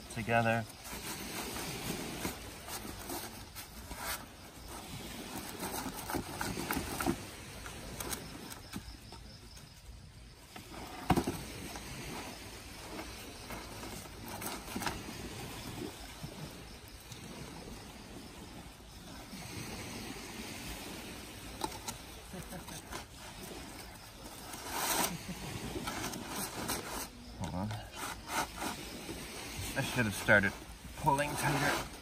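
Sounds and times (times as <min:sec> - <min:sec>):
strap rubbing and rustling: 0:00.8 - 0:07.3.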